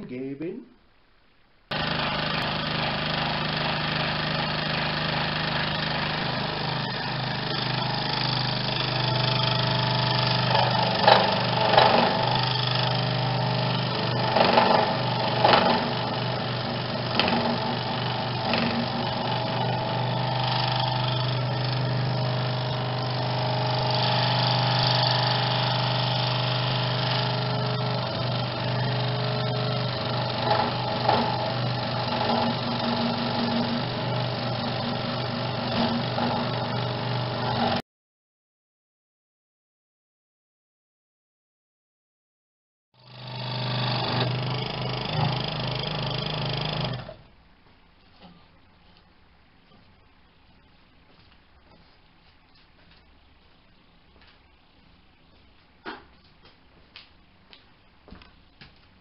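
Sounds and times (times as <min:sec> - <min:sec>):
scroll saw motor hum: 0:01.7 - 0:37.8, 0:43.0 - 0:47.2.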